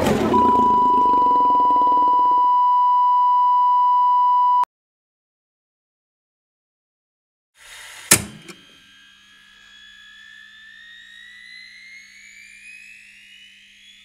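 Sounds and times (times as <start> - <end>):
electronic beep tone: 0.3 - 4.7.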